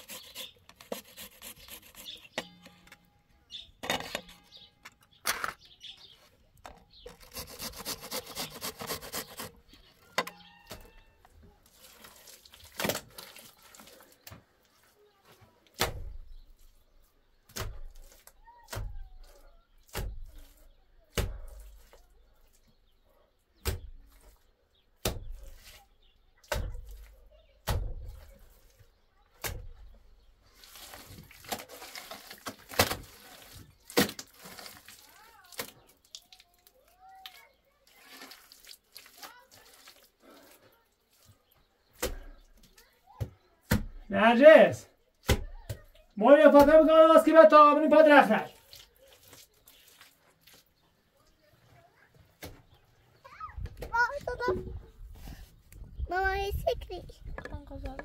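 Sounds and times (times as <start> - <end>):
metal grater rasping: 0.0 - 2.6, 7.1 - 9.6
wet plaster slapped on wall: 15.7 - 16.4, 17.5 - 22.0, 23.6 - 24.4, 25.0 - 25.7, 26.4 - 28.8, 29.4 - 30.0, 31.0 - 34.7, 41.9 - 42.5, 43.1 - 44.0, 45.2 - 47.0.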